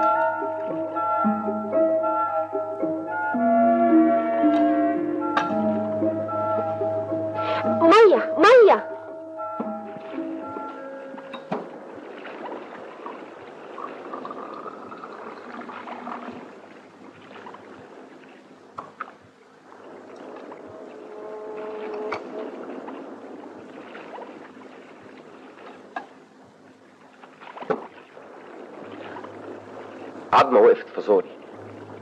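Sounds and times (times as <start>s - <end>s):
steady background noise: 4.0s - 32.0s
water pouring into a glass: 13.0s - 16.6s.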